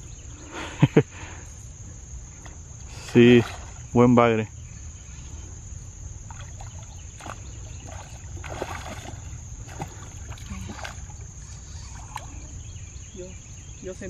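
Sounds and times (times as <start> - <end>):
fish splashing in water: 6.3 - 12.4.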